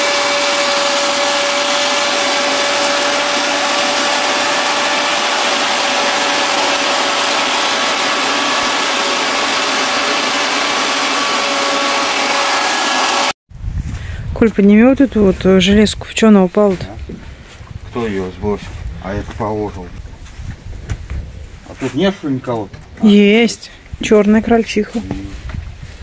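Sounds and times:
small electric machine whining: 0.0 - 13.4.

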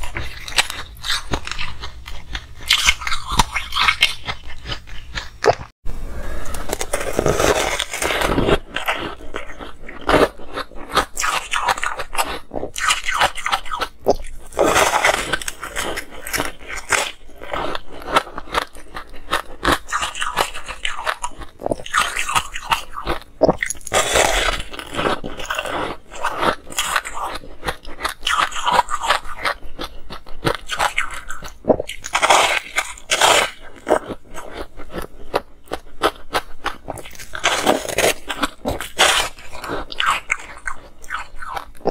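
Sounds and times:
ice being chewed: 0.0 - 5.7, 6.4 - 41.9.

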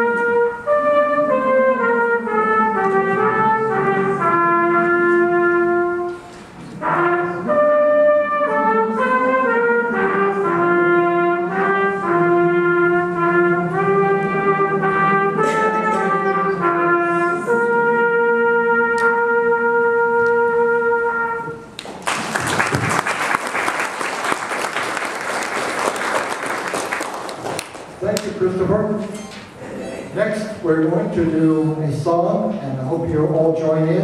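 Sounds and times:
harmonicas playing in unison: 0.0 - 21.9
audience applauding: 21.8 - 28.3.

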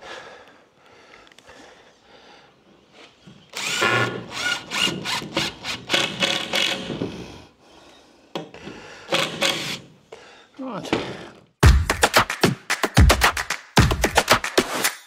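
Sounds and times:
cordless drill driving a screw: 3.5 - 7.0, 9.1 - 9.9.

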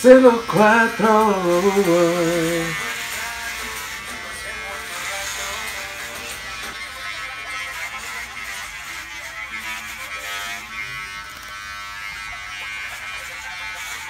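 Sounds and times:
electric hair clippers buzzing: 0.0 - 14.0.

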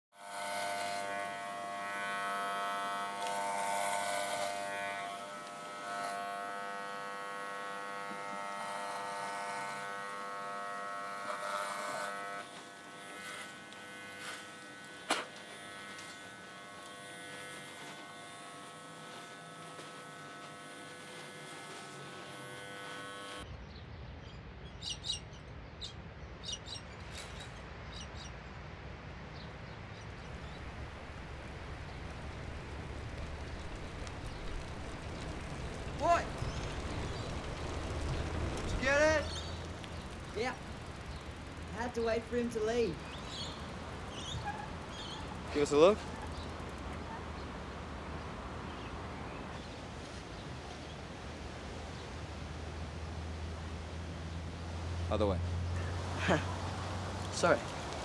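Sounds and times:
electric hair clippers buzzing: 0.1 - 23.5, 30.2 - 48.8
low outdoor rumble: 30.3 - 58.0.

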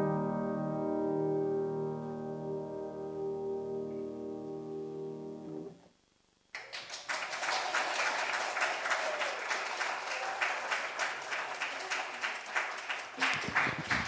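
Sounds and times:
piano chord ringing: 0.0 - 5.7
audience applauding: 6.5 - 14.0.

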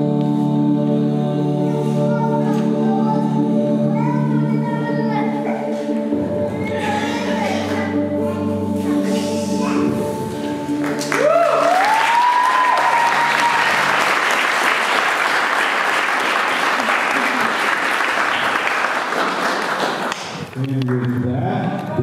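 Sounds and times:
music with held notes: 0.0 - 14.7
crowd applause: 10.8 - 21.4
rising cheer whoop: 11.0 - 14.5.

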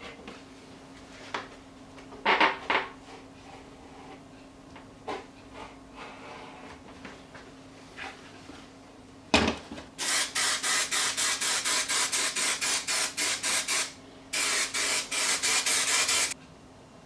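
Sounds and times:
rapid rubbing strokes on a surface: 10.6 - 16.4.

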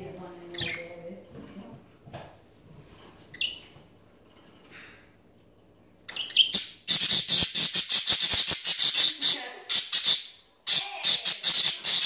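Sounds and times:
budgerigar chirping and squawking: 6.1 - 12.0.

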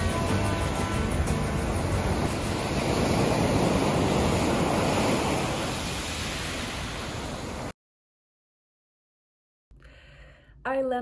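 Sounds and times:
sea waves washing ashore: 0.0 - 7.8.

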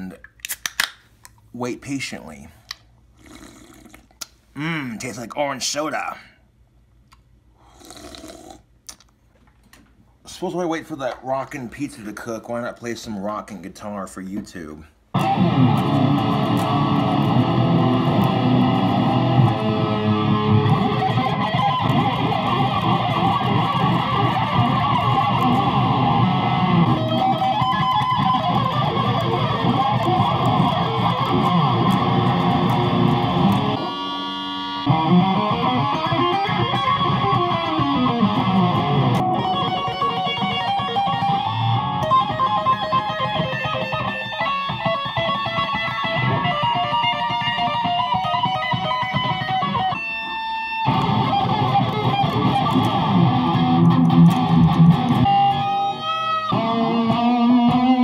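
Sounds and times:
electric guitar rock riffs: 15.1 - 58.0.

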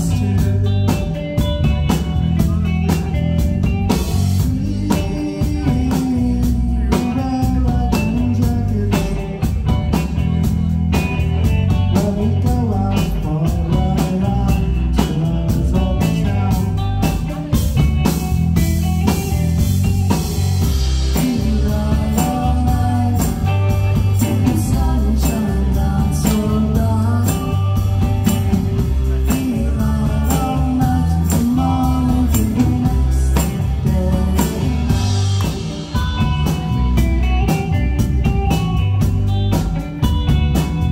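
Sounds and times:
live rock band playing: 0.0 - 40.9
person singing: 4.2 - 9.9, 11.7 - 17.4, 21.0 - 37.6.

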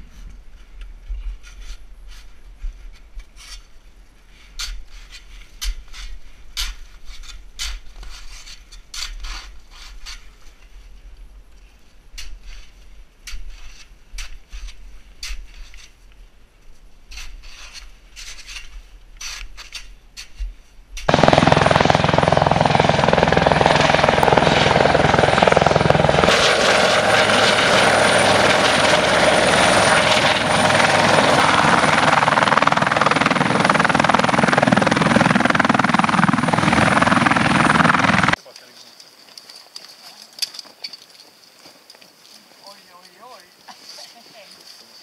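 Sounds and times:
metal blade scraping snow and ice: 17.1 - 20.4
helicopter rotor noise: 21.1 - 38.4
high whine: 21.1 - 38.4.

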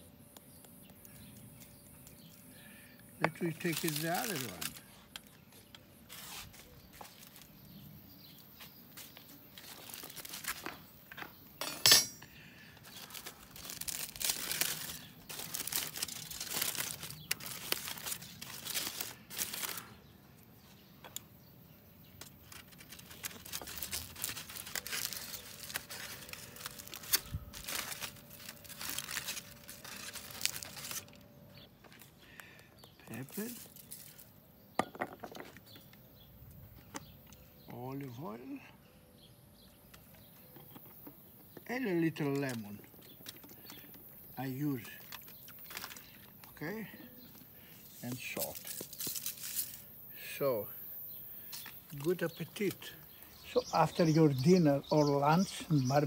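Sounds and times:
aluminium foil crinkling: 3.2 - 7.8, 8.9 - 10.9, 12.7 - 20.0, 22.1 - 34.4, 42.1 - 50.1
metal fork and knife clinking: 11.6 - 12.2.

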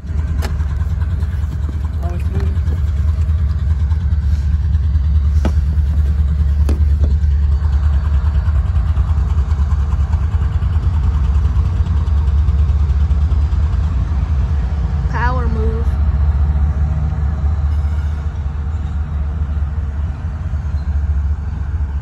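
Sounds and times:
locomotive rumble: 0.0 - 22.0.

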